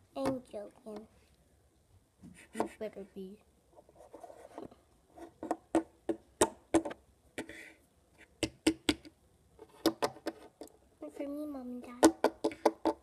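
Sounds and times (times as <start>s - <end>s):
figurines knocking on wooden table: 12.0s - 13.0s.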